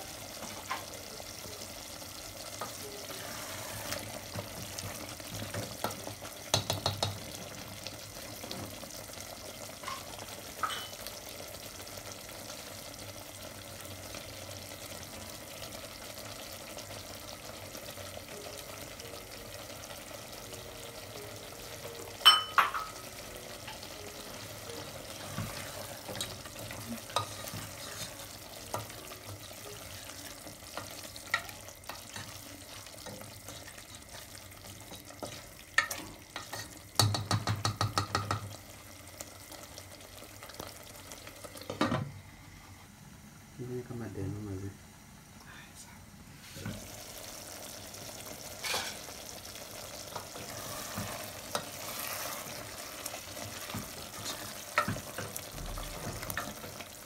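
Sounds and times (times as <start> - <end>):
curry sizzling and bubbling: 0.0 - 45.4, 46.2 - 57.0
spatula knocking against pot: 6.5 - 7.2, 37.0 - 38.6.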